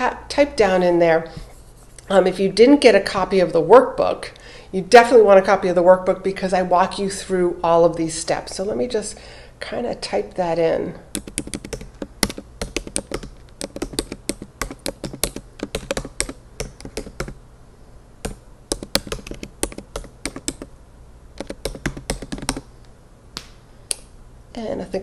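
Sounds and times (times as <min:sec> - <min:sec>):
keyboard key clicks: 0:11.2 - 0:17.4.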